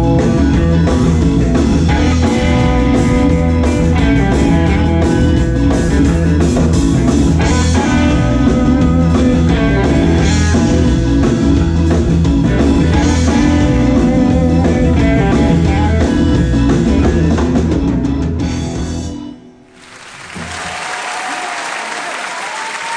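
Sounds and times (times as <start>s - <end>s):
rock and roll band playing live: 0.0s - 19.4s
audience applause: 19.7s - 22.9s.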